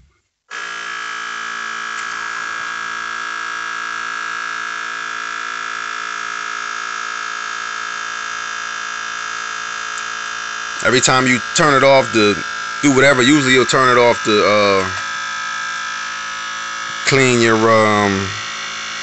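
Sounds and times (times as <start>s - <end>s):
printer electric hum: 9.6s - 19.0s.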